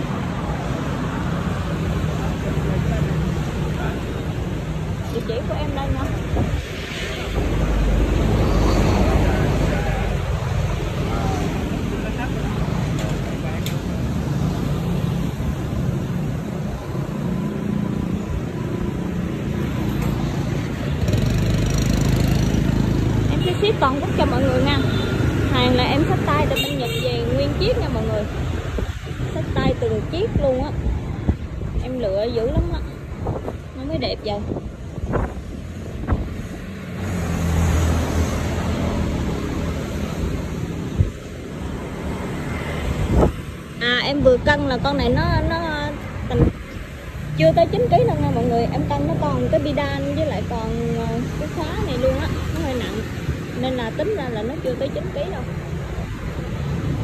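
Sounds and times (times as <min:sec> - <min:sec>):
passing vehicle engines: 0:00.0 - 0:57.0
wind noise on microphone: 0:04.9 - 0:10.8, 0:27.4 - 0:38.6, 0:39.6 - 0:50.6.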